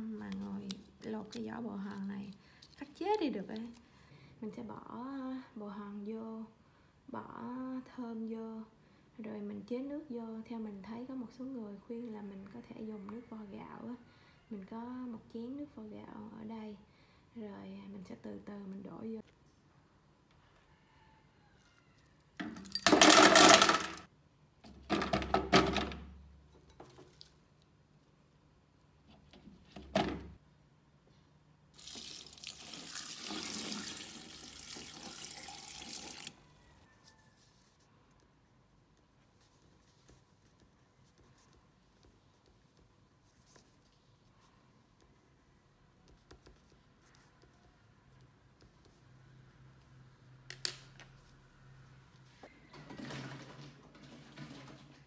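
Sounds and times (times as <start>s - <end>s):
soap nuts clattering into plastic jar: 22.6s - 24.0s
water pouring into jar: 31.8s - 36.4s.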